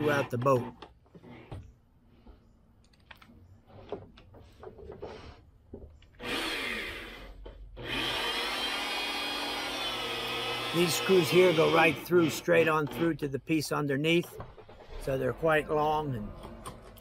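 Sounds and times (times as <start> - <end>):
electric drill running: 6.2 - 13.0.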